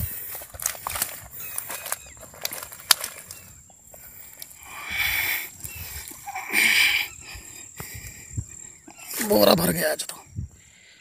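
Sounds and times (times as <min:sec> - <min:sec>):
net rustling on grass: 0:00.0 - 0:04.6.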